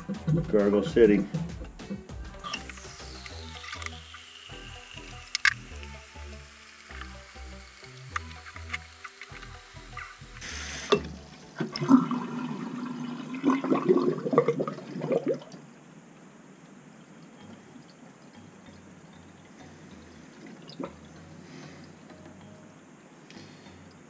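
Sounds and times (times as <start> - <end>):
sink drain gurgling: 2.4 - 15.6
click: 5.2 - 5.9, 8.0 - 10.1.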